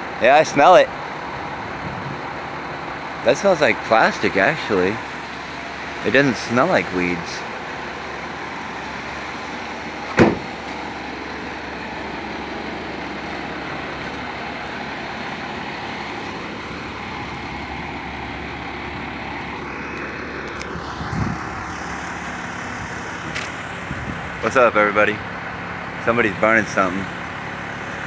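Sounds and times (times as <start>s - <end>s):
fire engine idling: 0.0s - 28.0s
sharp thud: 10.1s - 10.6s.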